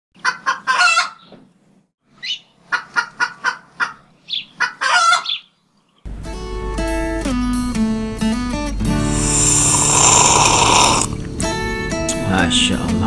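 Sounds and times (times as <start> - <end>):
chicken clucking: 2.7 - 5.4
music: 6.1 - 13.0.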